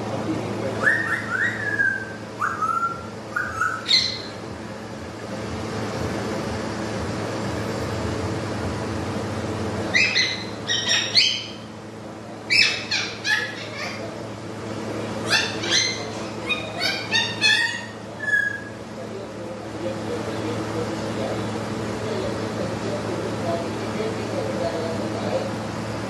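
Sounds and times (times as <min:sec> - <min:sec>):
air cooler fan whoosh: 0:00.0 - 0:26.0
parakeet squawking: 0:00.8 - 0:04.4, 0:09.9 - 0:11.7, 0:12.5 - 0:14.2, 0:15.2 - 0:18.8
parakeet whistling: 0:00.8 - 0:04.4, 0:09.9 - 0:11.7, 0:12.5 - 0:14.0, 0:15.2 - 0:18.8.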